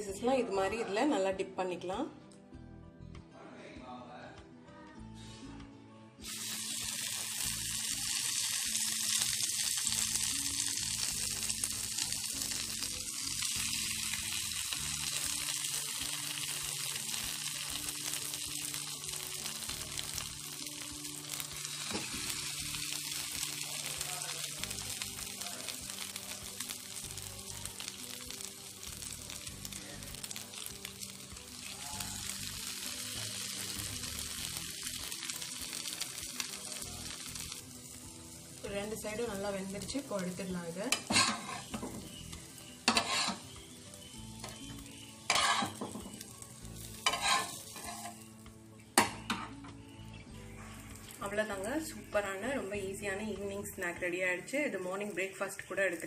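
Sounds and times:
bread sizzling in butter: 0:06.2 - 0:49.5, 0:50.4 - 0:56.0.

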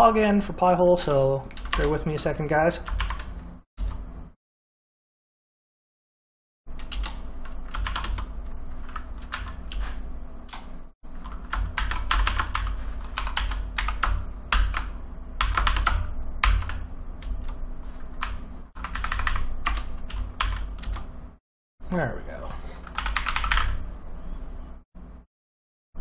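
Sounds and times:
steady low hum: 0:00.0 - 0:04.4, 0:06.7 - 0:25.3
keyboard typing: 0:02.8 - 0:03.3, 0:06.8 - 0:09.8, 0:10.5 - 0:17.6, 0:18.2 - 0:21.1, 0:22.8 - 0:23.8.

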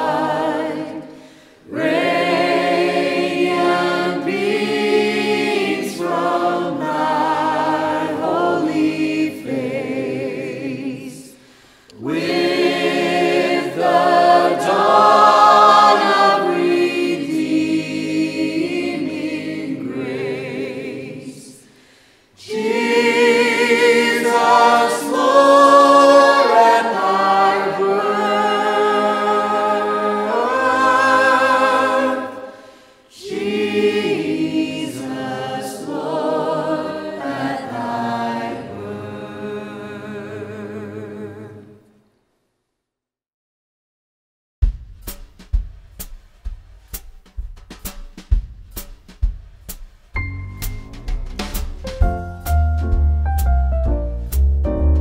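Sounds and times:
choir singing a cappella: 0:00.0 - 0:42.1.

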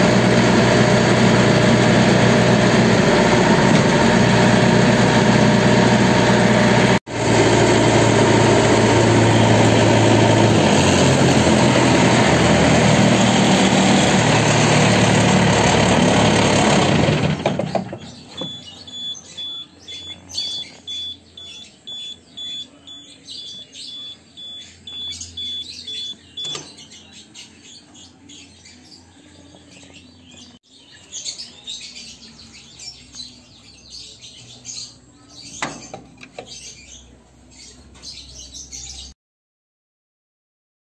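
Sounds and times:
harvester engine running: 0:00.0 - 0:26.8
birds chirping: 0:12.9 - 0:39.2.

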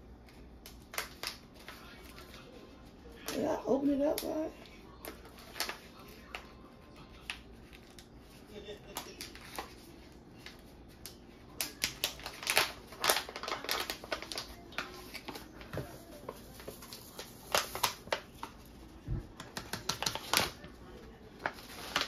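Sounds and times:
paper bag crinkling: 0:11.6 - 0:18.9, 0:19.7 - 0:22.0.

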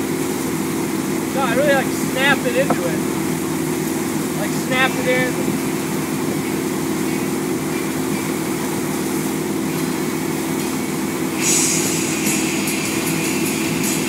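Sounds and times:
boat engine running: 0:00.0 - 0:11.2.

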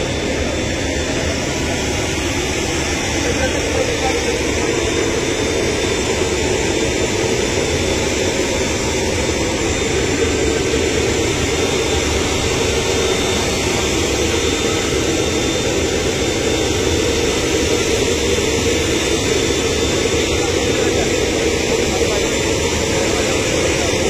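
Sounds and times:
jet aircraft engine rushing: 0:00.0 - 0:24.0.

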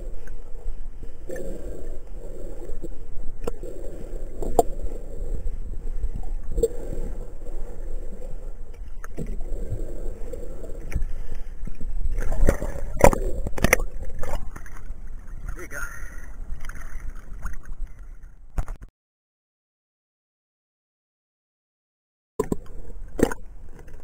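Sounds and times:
underwater scrubbing swish: 0:00.0 - 0:15.6
water splashing: 0:06.0 - 0:18.1.

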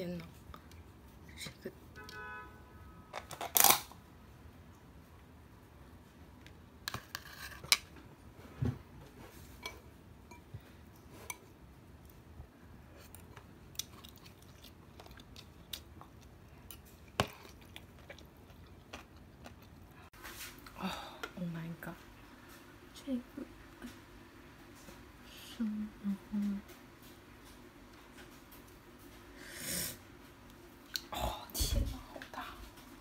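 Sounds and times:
spoon scraping a ceramic bowl: 0:07.0 - 0:07.8
chewing: 0:12.9 - 0:20.1.

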